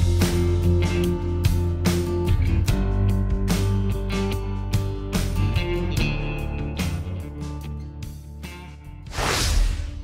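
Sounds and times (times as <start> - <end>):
background guitar music: 0.0 - 9.1
whoosh sound effect: 9.1 - 10.0.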